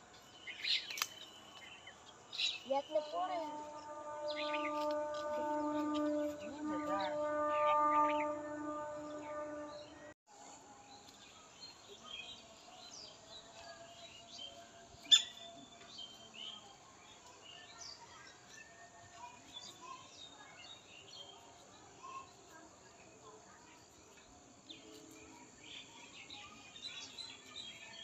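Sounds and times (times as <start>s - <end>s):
small birds chirping: 0.0s - 5.0s, 11.1s - 22.6s.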